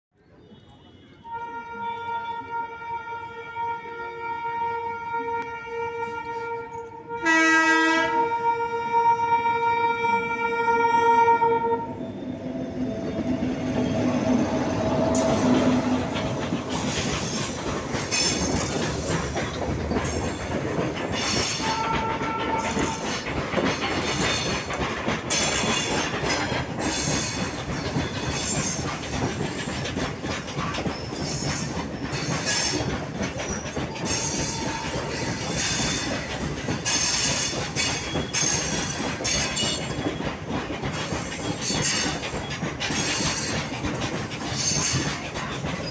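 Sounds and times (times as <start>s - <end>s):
wheel squeals: 12.0s - 45.9s
train wheels clattering over rail joints: 12.9s - 45.9s.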